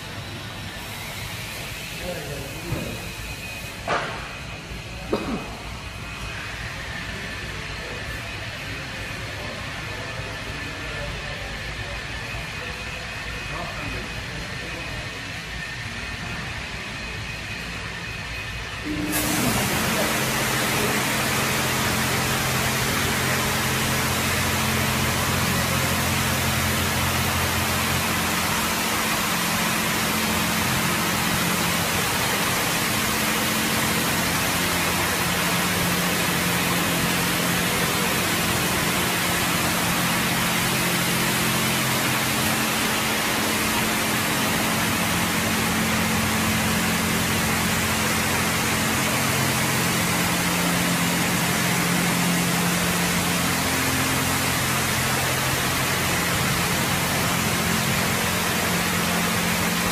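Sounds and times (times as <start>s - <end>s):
car wash hiss: 0.0s - 11.5s, 18.8s - 59.9s
low motor hum: 18.6s - 59.9s.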